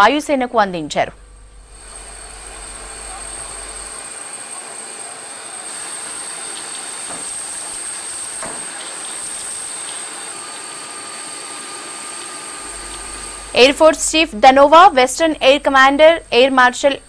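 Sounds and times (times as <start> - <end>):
helicopter turbine whine: 0.0 - 17.0
hiss of water spray: 5.6 - 13.6.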